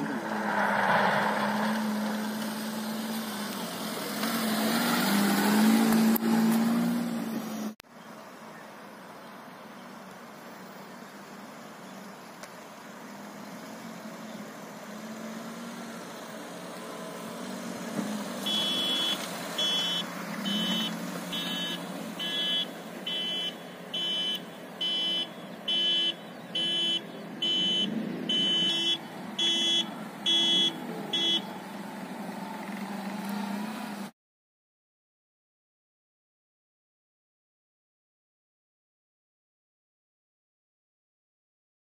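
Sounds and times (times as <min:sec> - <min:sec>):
car engine revving: 0:00.0 - 0:07.8, 0:13.3 - 0:34.1
electronic beeper beeping: 0:18.5 - 0:31.4.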